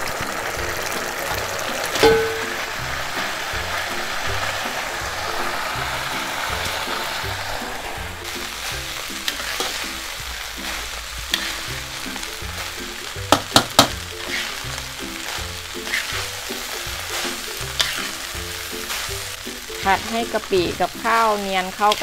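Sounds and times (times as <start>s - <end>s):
background music: 0.0s - 22.0s
rice sizzling in pan: 0.0s - 22.0s
spatula clanking against pan: 2.0s - 2.7s, 13.3s - 14.5s, 17.2s - 18.2s
metal spatula scraping pan: 2.1s - 9.8s, 10.6s - 12.0s, 14.2s - 14.6s, 15.2s - 19.1s.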